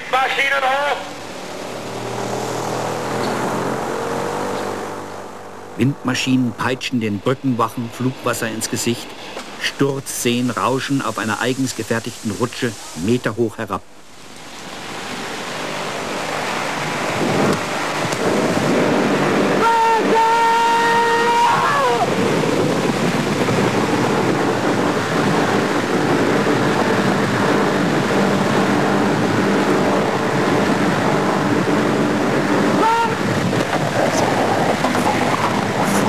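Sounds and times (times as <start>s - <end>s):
wind: 0.0s - 36.0s
rushing crashing water: 6.3s - 36.0s
person shouting: 19.6s - 22.1s, 32.8s - 33.2s.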